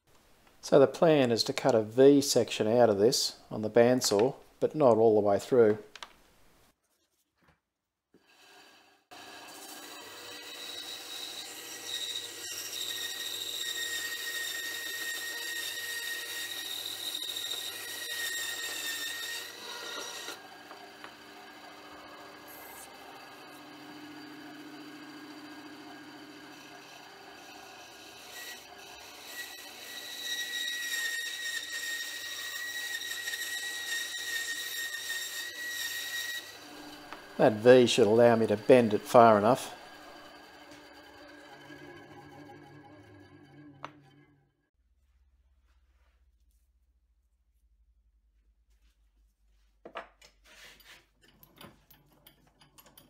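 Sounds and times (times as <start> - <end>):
bandsaw cutting metal: 8.2 - 44.4.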